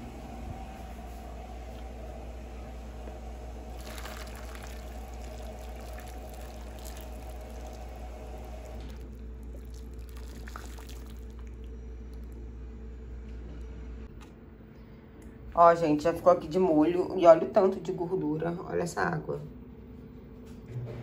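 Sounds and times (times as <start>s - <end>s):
steady low hum: 0.0s - 21.0s
water pouring into bowl: 3.8s - 12.4s.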